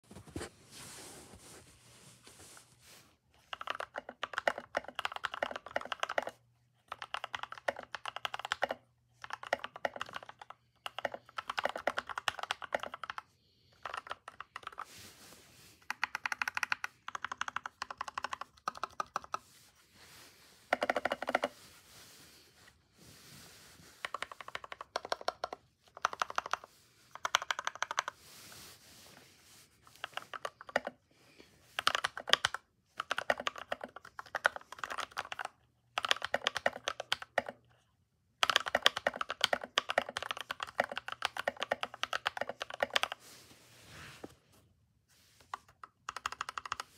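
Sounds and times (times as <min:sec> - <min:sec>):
mechanical keyboard typing: 0:03.4 - 0:13.2, 0:13.8 - 0:14.8, 0:15.8 - 0:19.4, 0:20.7 - 0:21.5, 0:24.0 - 0:28.2, 0:30.0 - 0:31.0, 0:31.8 - 0:37.6, 0:38.4 - 0:43.2, 0:45.5 - 0:46.9.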